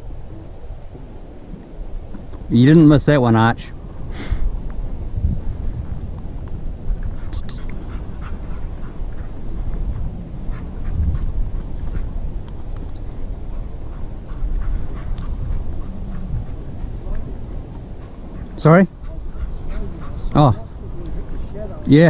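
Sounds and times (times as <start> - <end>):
wind rumble on microphone: 0.0 - 22.0
short high-pitched pips: 7.3 - 7.8.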